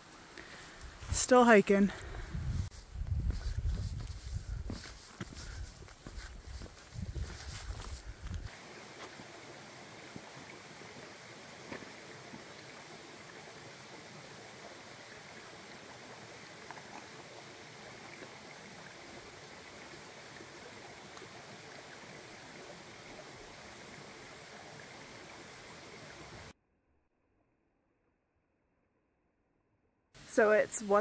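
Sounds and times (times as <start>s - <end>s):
stream running over rocks: 2.8s - 26.5s.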